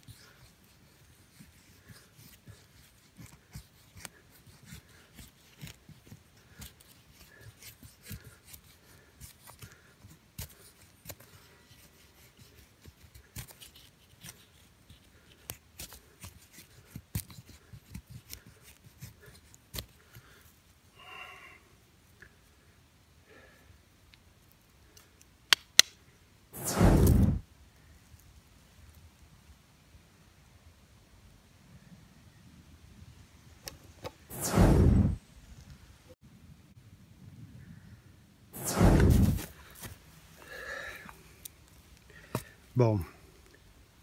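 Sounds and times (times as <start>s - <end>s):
knife scraping wooden stick: 0.0s - 20.0s
brief pitched sound: 26.6s - 27.4s, 38.6s - 39.4s.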